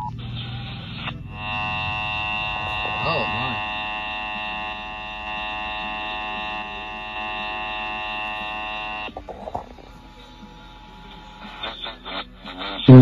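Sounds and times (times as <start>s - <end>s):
buzzing alert tone from radio: 0.0s - 9.6s.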